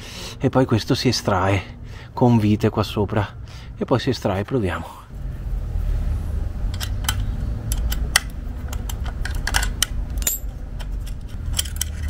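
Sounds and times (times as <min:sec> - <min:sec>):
low rumble: 0:05.0 - 0:12.0.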